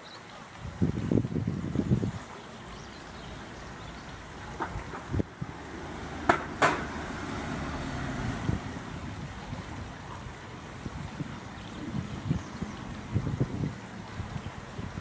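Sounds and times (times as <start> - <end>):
wind buffeting microphone: 0.5 - 15.0
short sharp knocks: 6.2 - 6.9.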